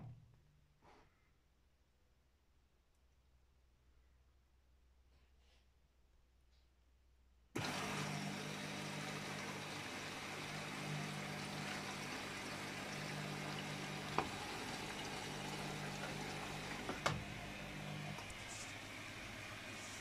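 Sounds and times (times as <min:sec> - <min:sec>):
water rushing into washing machine: 0:07.6 - 0:20.0.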